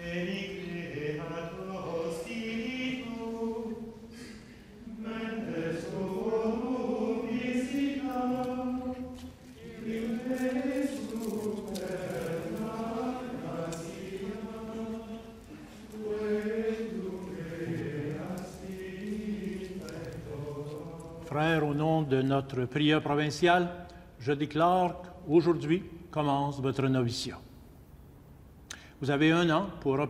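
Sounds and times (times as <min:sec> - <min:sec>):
men chanting plainchant: 0:00.0 - 0:22.3.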